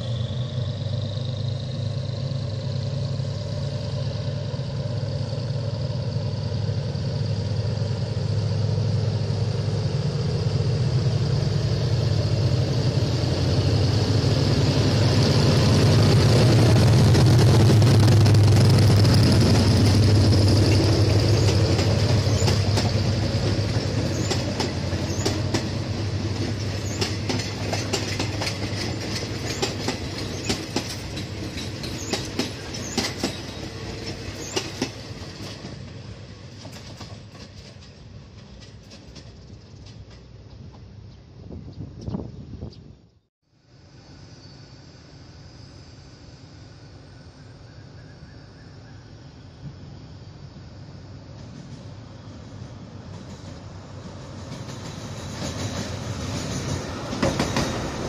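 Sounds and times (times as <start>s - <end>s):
diesel locomotive engine drone: 0.0s - 58.0s
train wheels clicking over rail joints: 6.5s - 41.0s, 51.2s - 58.0s.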